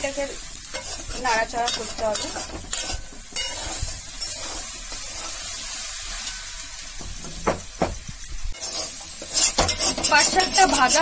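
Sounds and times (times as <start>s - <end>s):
food sizzling in oil: 0.0s - 11.0s
spatula scraping metal pan: 0.7s - 6.5s, 8.6s - 11.0s.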